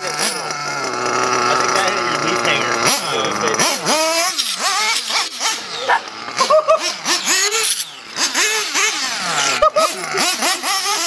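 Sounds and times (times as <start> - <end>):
model engine revving: 0.0 - 11.0.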